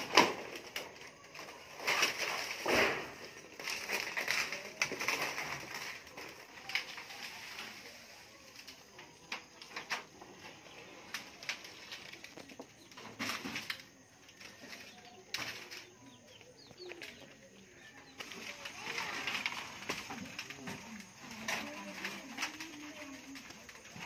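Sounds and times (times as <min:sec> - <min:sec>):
metal roofing sheets clattering: 0:00.0 - 0:24.0.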